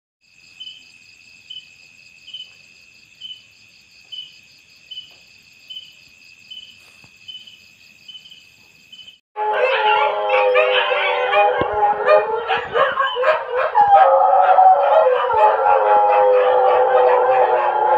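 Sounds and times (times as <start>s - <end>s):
loud insect chirp: 0.2s - 9.2s
night insects trilling: 0.2s - 9.2s
dog howling: 9.4s - 17.9s.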